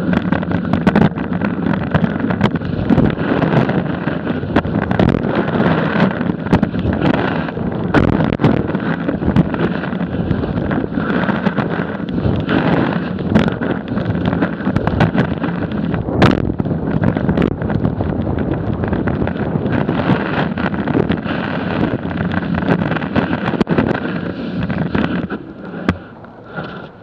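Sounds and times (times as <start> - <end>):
snowboard scraping over snow: 0.0 - 27.0
wind on microphone: 0.0 - 27.0.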